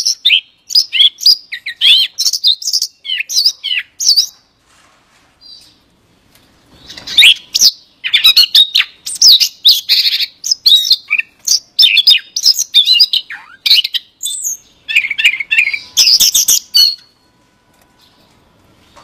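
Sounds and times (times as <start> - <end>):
bird warbling song: 0.0 - 4.4, 6.7 - 17.2.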